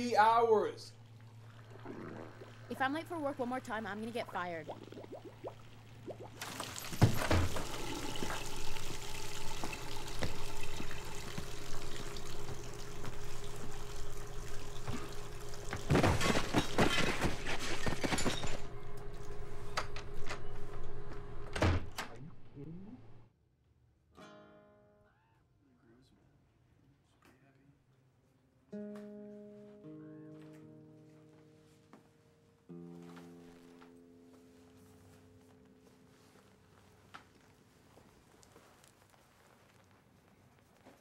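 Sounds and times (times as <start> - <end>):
water rushing: 1.0 - 15.9.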